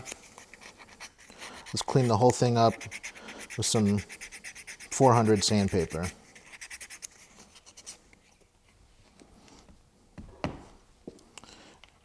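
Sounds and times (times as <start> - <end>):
sandpaper rubbing: 0.0 - 8.0.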